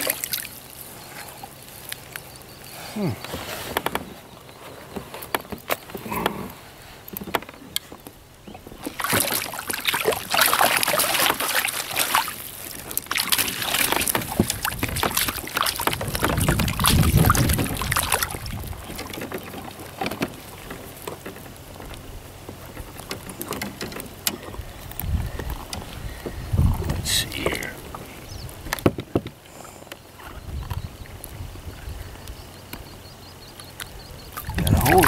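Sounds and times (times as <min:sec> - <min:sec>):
fish splashing in water: 0:00.0 - 0:02.3, 0:08.8 - 0:21.0, 0:34.2 - 0:35.0.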